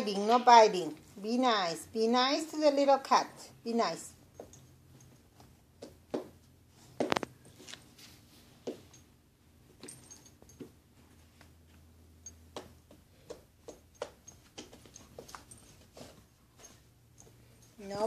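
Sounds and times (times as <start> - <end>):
faint low hum: 0.0 - 18.0
animals play-fighting on a rug: 4.2 - 18.0.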